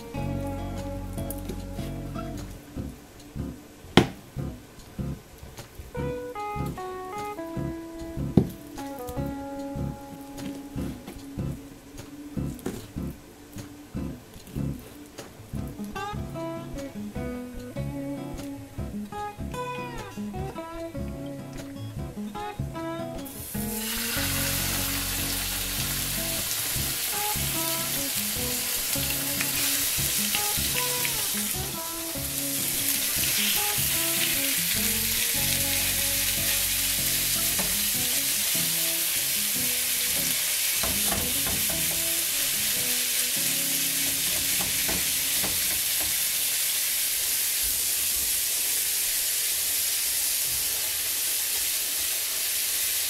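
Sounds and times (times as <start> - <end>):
quiet guitar music: 0.0 - 46.5
food sizzling in a pan: 23.2 - 53.0.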